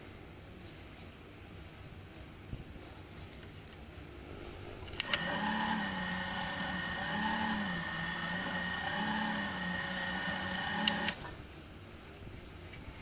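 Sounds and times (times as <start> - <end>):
motor switch click: 4.9 - 5.9, 10.0 - 11.3
toy washing machine motor whining: 5.0 - 11.3.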